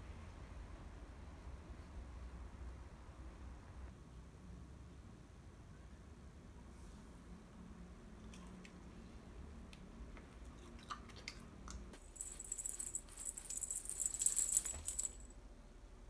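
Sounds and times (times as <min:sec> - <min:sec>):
tinsel toy crinkling and jingling: 0:12.0 - 0:15.4.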